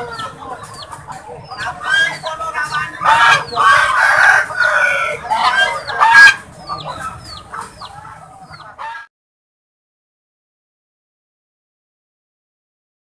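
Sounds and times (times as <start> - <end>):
geese honking: 0.0 - 9.1
small birds chirping: 0.0 - 9.1.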